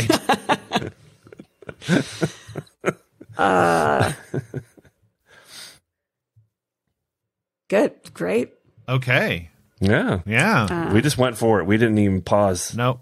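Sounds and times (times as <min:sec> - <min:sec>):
breaths: 0:05.2 - 0:06.0.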